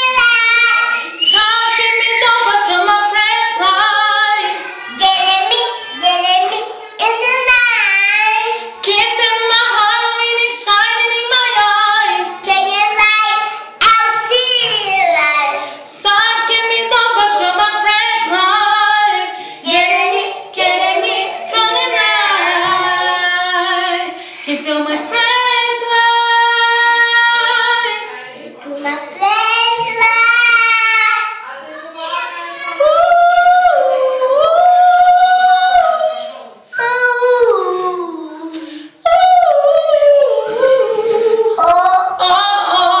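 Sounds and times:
girl singing: 0.0 - 43.0
woman singing: 1.2 - 4.4, 8.8 - 12.2, 16.0 - 28.1, 32.8 - 36.3, 38.5 - 43.0.

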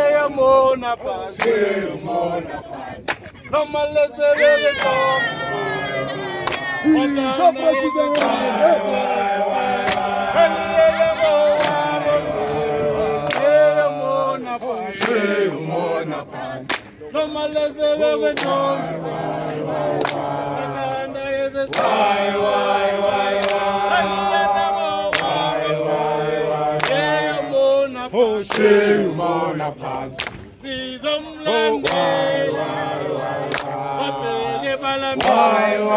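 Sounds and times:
group singing a chant: 0.0 - 35.9
sharp hand claps: 6.4 - 6.7, 9.8 - 10.1, 13.2 - 13.6, 16.7 - 17.0, 23.4 - 23.6, 25.1 - 25.4, 26.8 - 27.1, 28.5 - 28.7, 30.2 - 30.5, 33.5 - 33.8.

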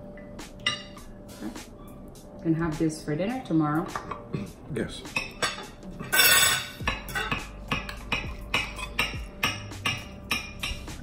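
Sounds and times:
quiet music: 0.0 - 11.0
knife and fork clinking on plates: 5.1 - 10.9.

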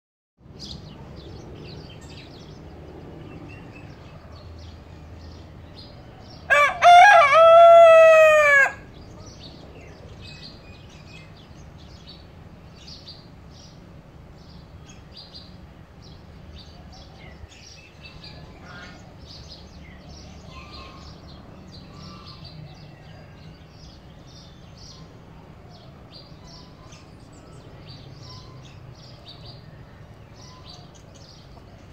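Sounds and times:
small birds chirping: 0.4 - 6.6, 8.7 - 31.9
rooster crowing: 6.0 - 8.9.

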